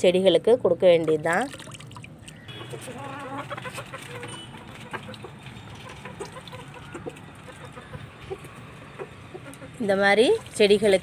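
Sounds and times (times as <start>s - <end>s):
chickens clucking: 2.5s - 9.8s.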